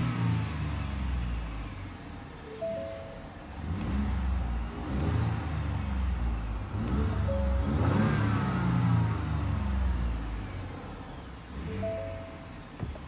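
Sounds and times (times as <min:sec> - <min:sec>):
pickup engine revving: 0:03.4 - 0:12.8.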